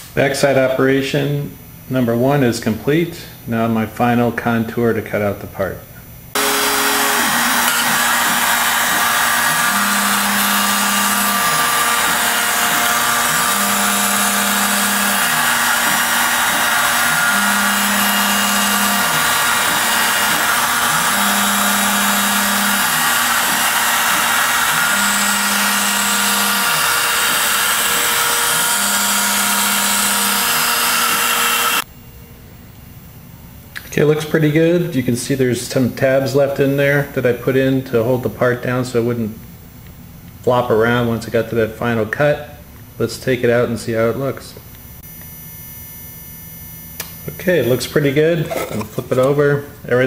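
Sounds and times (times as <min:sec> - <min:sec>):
low machine hum: 0:00.1 - 0:36.0
router cutting noise: 0:06.3 - 0:31.9.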